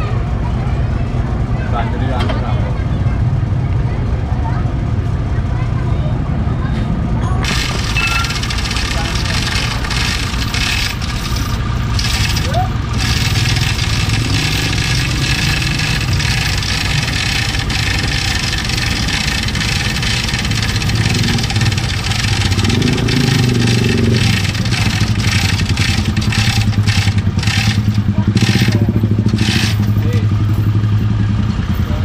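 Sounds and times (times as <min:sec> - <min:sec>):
tow truck engine revving: 0:07.4 - 0:32.0.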